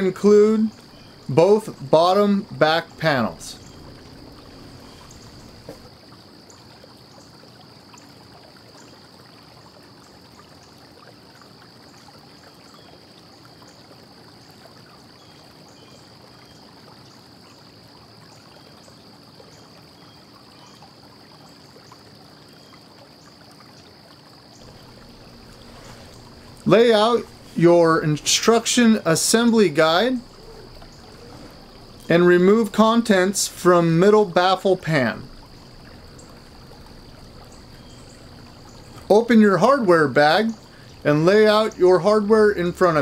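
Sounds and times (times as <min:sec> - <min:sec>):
steady hiss: 0:00.0 - 0:05.9, 0:24.6 - 0:43.0.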